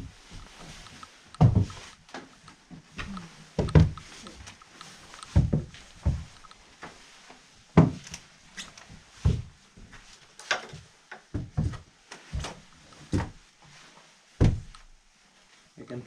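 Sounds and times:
boots on wooden stairs: 0.0s - 7.0s, 11.3s - 13.4s, 14.4s - 14.8s.

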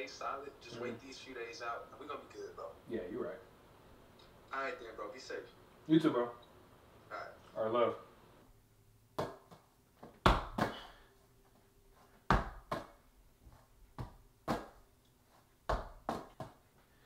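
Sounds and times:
sharp knocks and thumps: 15.7s - 16.6s.

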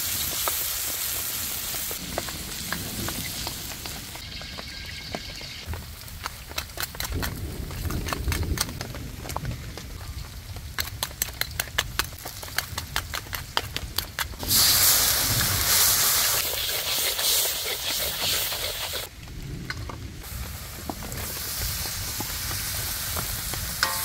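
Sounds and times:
loud hissing sizzle: 0.0s - 5.7s, 14.4s - 19.1s, 20.2s - 24.0s
oil popping and crackling: 0.0s - 24.0s.

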